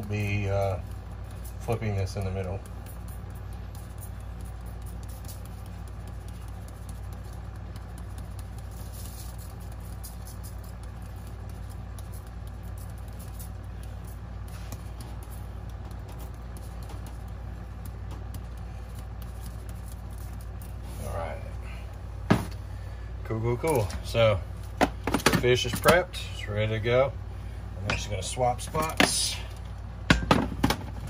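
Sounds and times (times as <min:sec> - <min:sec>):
kitchen appliance humming: 0:00.0 - 0:31.0
seasoning shaken from shaker: 0:01.0 - 0:21.0.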